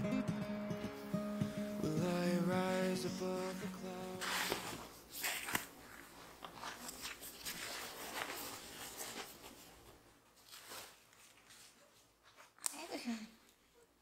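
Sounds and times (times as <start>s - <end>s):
fabric rustling: 3.3s - 12.6s.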